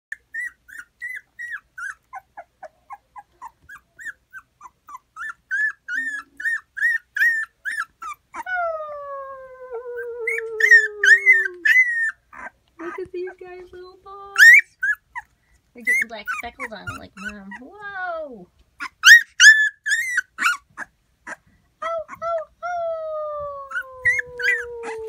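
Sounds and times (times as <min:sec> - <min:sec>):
puppy crying squeals: 0:00.1 - 0:13.1, 0:14.4 - 0:18.1, 0:18.8 - 0:25.0
puppy howl-like wail: 0:08.4 - 0:11.9, 0:21.8 - 0:25.0.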